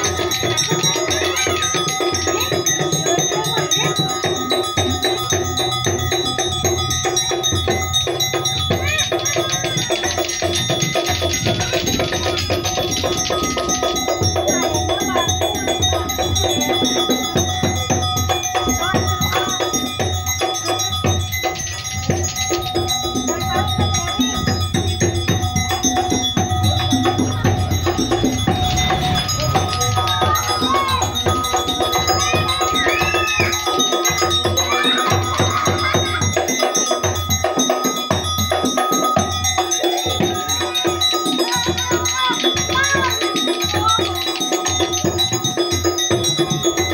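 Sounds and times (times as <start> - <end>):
fast drum beats: 0.0 - 46.9
ringing gong-like metal tones: 0.0 - 46.9.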